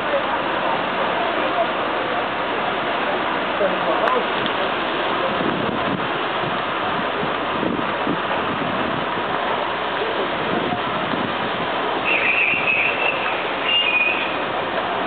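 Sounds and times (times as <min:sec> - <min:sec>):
steady noisy rush: 0:00.0 - 0:15.0
high-pitched squeal: 0:12.0 - 0:14.5.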